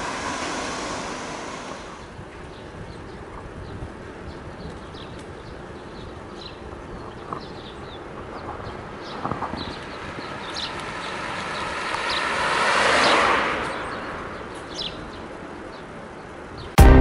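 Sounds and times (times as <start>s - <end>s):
vehicle passing by: 0.0s - 2.2s, 10.4s - 14.9s
small birds chirping: 2.4s - 12.5s, 13.6s - 16.8s.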